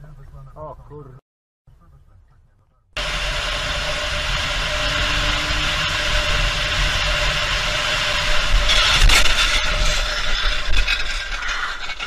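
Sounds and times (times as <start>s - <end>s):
road and wind noise: 3.0s - 11.0s
steady hum: 3.0s - 11.5s.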